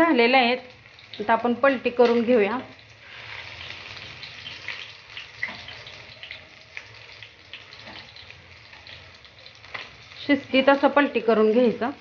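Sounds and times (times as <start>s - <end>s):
fish sizzling in oil: 0.0s - 12.0s.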